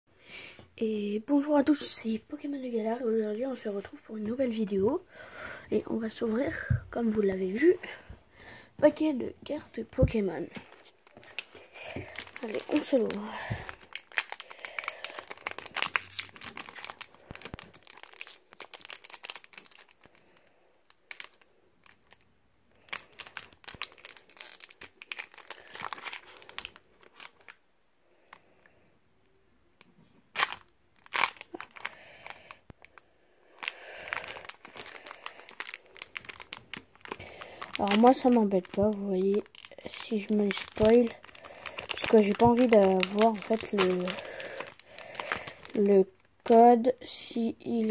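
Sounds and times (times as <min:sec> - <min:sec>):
foil wrapper tearing and crinkling: 0:10.5 - 0:20.4, 0:21.1 - 0:22.2, 0:22.8 - 0:27.6, 0:30.3 - 0:32.6, 0:33.6 - 0:46.6.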